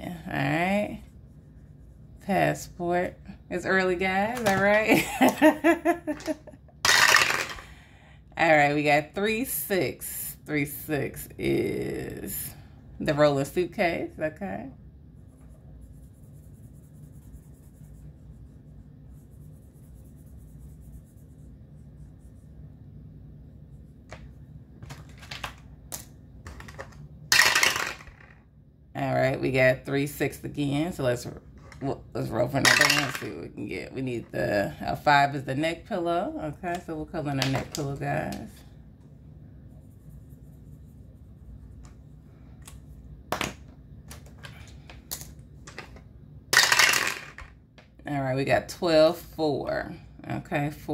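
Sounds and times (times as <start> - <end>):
dice rolling through dice tower: 6.2 - 7.6, 24.8 - 28.4, 32.6 - 33.3, 43.3 - 47.6
marker scratching on paper: 15.2 - 22.8, 39.6 - 43.0.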